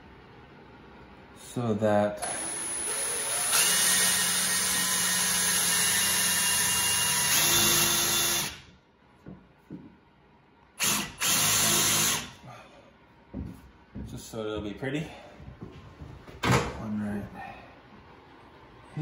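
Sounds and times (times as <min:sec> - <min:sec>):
cordless drill boring into wood: 0:02.2 - 0:08.6, 0:10.8 - 0:12.3.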